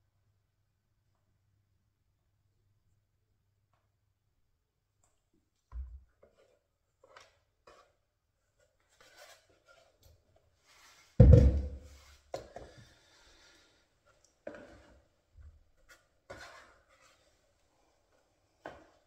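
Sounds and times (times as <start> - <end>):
dull thump: 11.2 - 11.9
plastic containers knocking on wood: 11.2 - 11.9.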